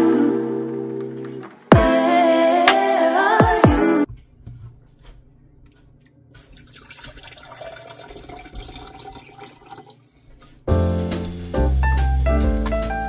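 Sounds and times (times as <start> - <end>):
water pouring into glass: 6.4 - 10.0.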